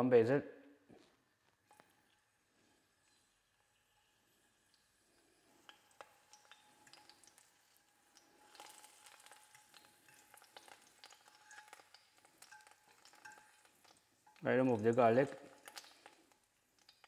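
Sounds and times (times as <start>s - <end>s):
garlic sizzling in oil: 1.1s - 17.0s
metal fork clicking on pan: 9.7s - 14.4s.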